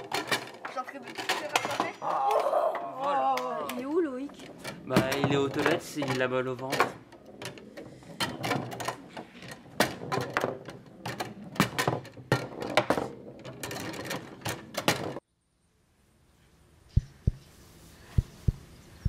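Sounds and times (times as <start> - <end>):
foosball ball and players clacking: 0.0 - 15.2
foosball rods knocking: 0.0 - 15.2.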